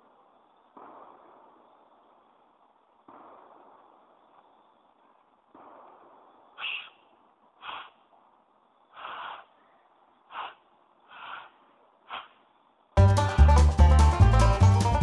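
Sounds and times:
breath puffs into cupped hands: 7.6s - 8.0s, 9.0s - 9.5s, 10.3s - 12.4s
music: 13.0s - 15.0s.

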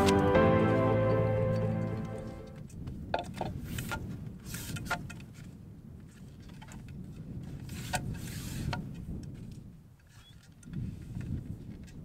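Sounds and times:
wind rumbling on microphone: 2.5s - 12.0s.

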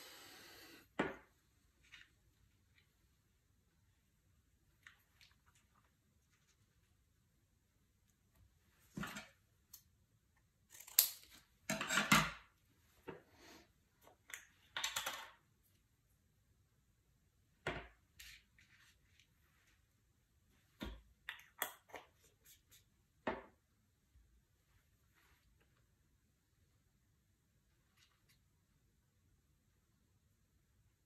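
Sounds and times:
rustling and scraping over paper: 18.2s - 19.9s.

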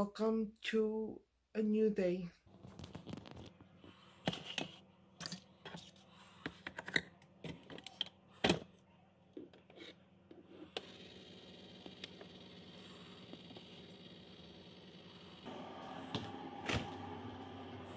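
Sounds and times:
coffee maker hissing and humming: 9.8s - 17.9s.

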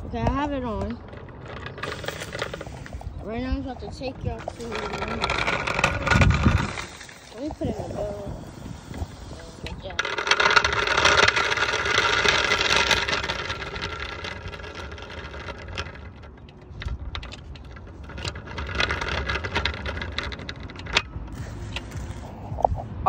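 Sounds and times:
frame rattling: 0.0s - 22.1s
small wheels rumbling on asphalt: 0.0s - 23.0s.

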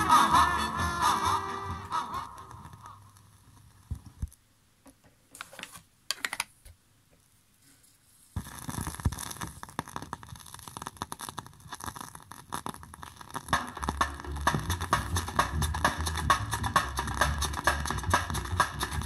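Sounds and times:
vinyl surface crackle and pops: 2.2s - 4.4s, 8.3s - 19.0s.

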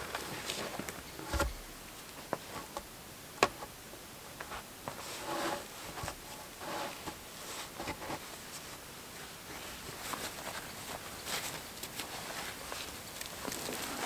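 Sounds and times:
soft rustling: 4.4s - 14.0s.

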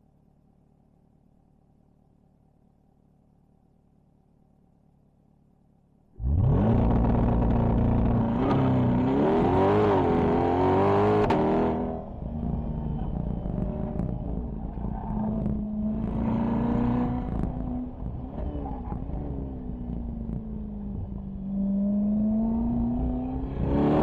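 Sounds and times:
car engine revving: 6.2s - 24.0s.

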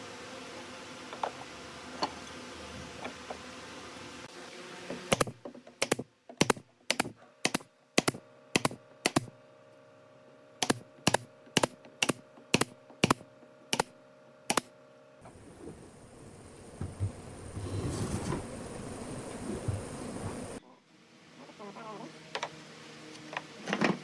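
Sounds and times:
nail gun firing: 5.1s - 9.4s, 10.6s - 13.9s, 14.5s - 14.7s.

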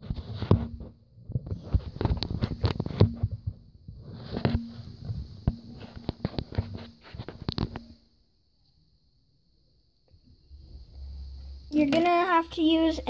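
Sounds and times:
camera handling knocks and rubbing: 0.1s - 7.9s.

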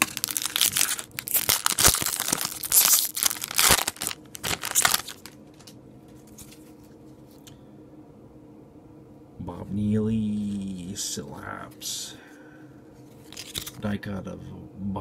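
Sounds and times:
foil wrapper tearing and crinkling: 0.0s - 5.7s, 13.3s - 13.8s.

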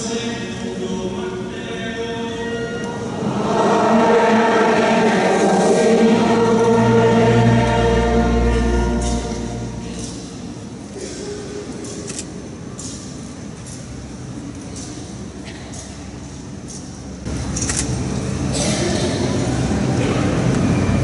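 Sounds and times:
church choir singing: 2.8s - 10.8s
deep bass note held: 6.7s - 10.6s.

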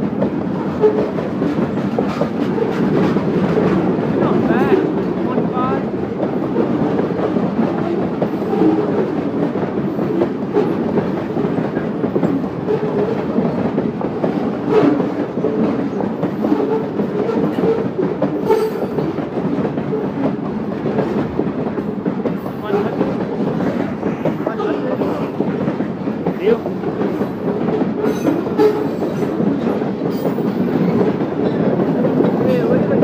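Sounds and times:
sharp clanks of train cars: 0.0s - 33.0s
train wheels rumbling on rails: 0.0s - 33.0s.

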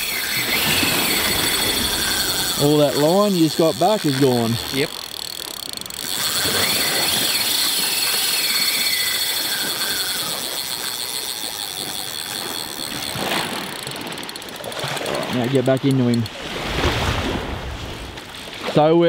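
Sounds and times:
fishing reel drag buzzing: 0.0s - 17.0s.

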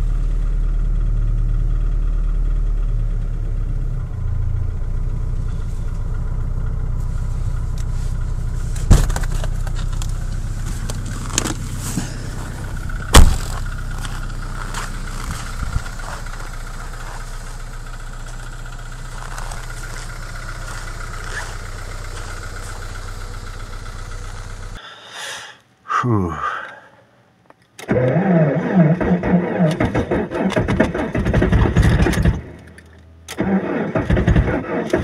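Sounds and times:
car engine idling: 0.0s - 24.8s
sharp loud knocks: 13.1s - 13.6s.

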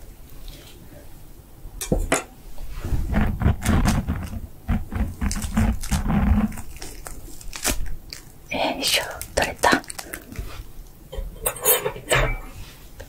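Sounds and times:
low muffled bumps: 2.8s - 6.6s.

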